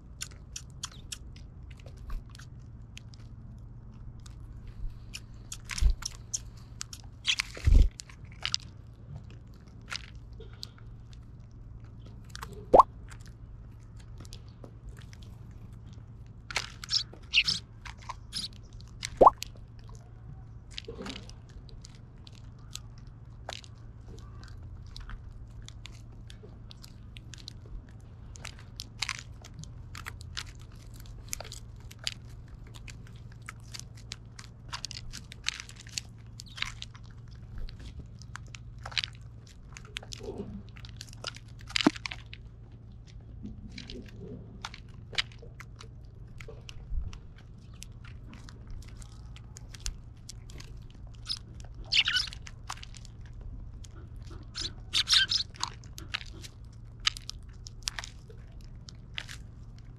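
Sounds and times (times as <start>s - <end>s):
birds cracking seeds: 0.0s - 20.1s, 20.7s - 59.9s.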